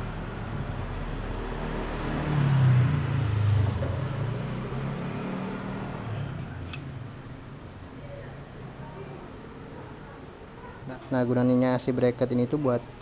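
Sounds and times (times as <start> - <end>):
motor vehicle passing: 0.0 - 8.2.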